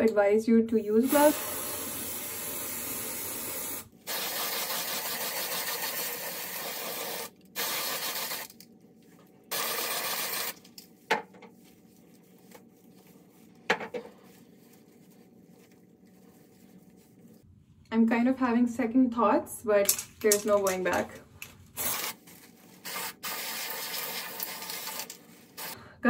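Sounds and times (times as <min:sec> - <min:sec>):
aerosol spray hissing: 0:01.0 - 0:08.5.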